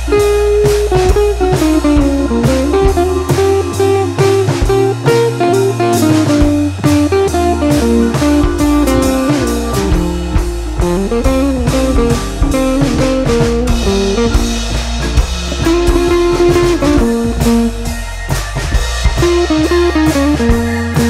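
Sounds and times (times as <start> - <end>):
guitar and drums music: 0.0 - 21.0.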